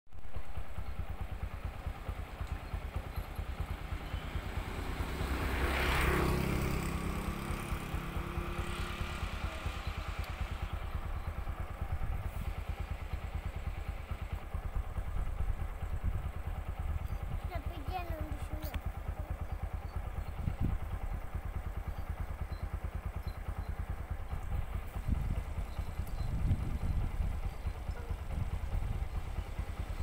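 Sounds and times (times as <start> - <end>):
engine running with low throb: 0.1 - 30.0
vehicle passing by: 3.6 - 14.2.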